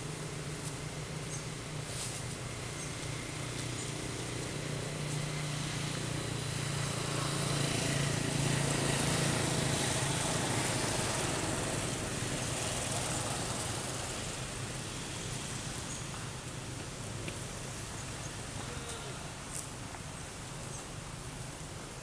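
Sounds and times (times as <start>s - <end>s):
vehicle engine passing by: 1.9s - 16.1s.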